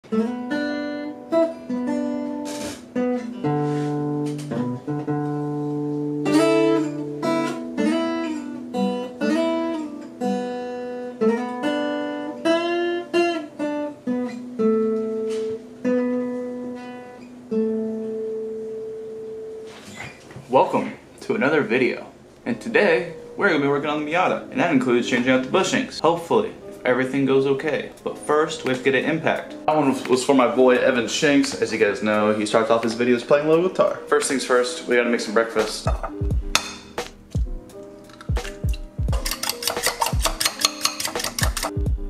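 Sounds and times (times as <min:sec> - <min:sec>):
acoustic guitar plucked: 0:00.0 - 0:20.2, 0:35.4 - 0:42.0.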